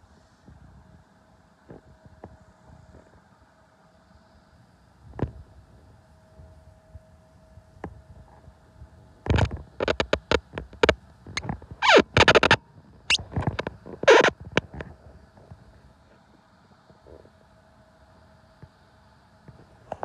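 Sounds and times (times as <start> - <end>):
handling noise on microphone: 9.3 - 15.6
squeaky sliding sounds: 9.8 - 10.4, 11.4 - 14.3.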